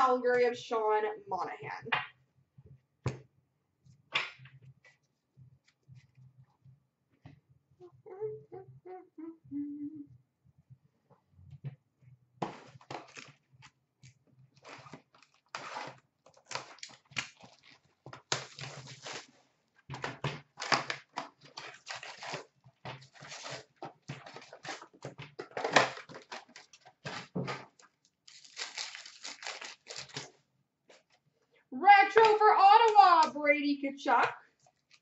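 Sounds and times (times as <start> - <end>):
packaging crinkling and tearing: 12.5 - 13.7, 14.6 - 19.4, 20.0 - 30.4, 34.6 - 35.0.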